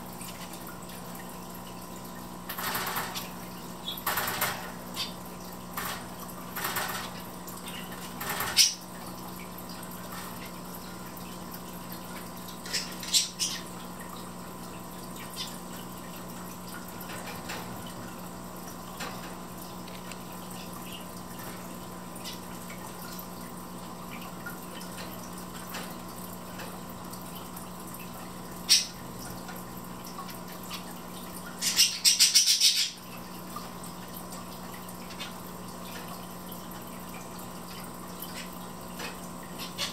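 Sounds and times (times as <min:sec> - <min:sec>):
finches chirping: 0:12.7 - 0:13.7.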